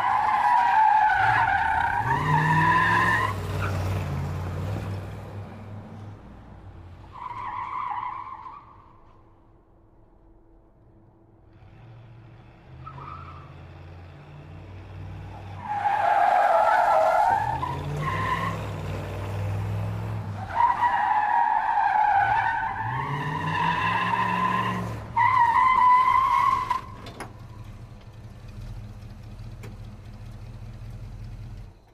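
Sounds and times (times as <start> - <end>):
car engine revving: 11.5 - 20.8, 22.7 - 31.8.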